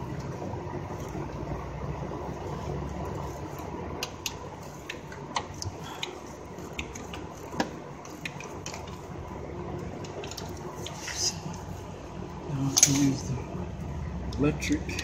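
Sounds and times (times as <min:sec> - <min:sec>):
steady low hum: 0:00.0 - 0:15.0
metal tool clicking on engine parts: 0:12.7 - 0:13.2.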